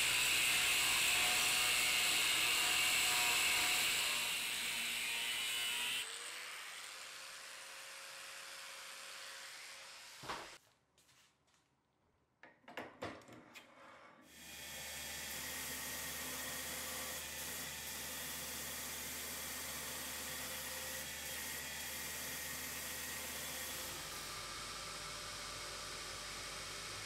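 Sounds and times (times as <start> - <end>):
belt grinder running: 0.0 - 10.2
angle grinder cutting steel: 0.0 - 10.6.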